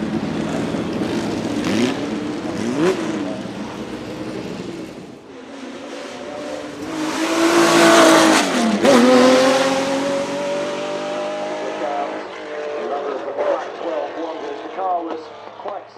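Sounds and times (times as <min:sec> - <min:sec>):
racing car engine accelerating past: 0:05.4 - 0:13.0.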